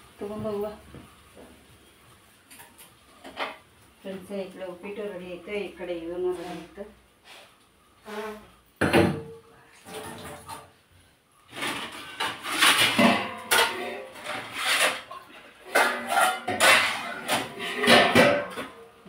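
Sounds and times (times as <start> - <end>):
metal plates and utensils clattering: 11.5 - 19.0.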